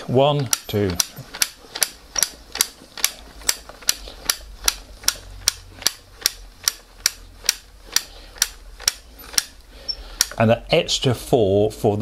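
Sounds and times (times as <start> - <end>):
film loader counter clicking: 0.3 - 9.6.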